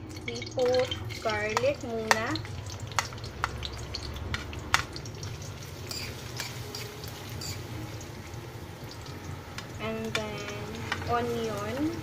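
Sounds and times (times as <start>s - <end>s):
garlic sizzling in oil: 0.0s - 12.0s
metal spoon scraping and tapping: 5.9s - 7.6s.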